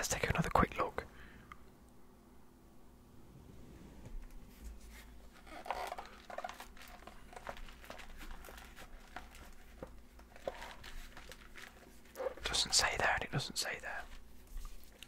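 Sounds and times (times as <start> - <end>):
packaging crinkling and rustling: 4.2 - 13.0.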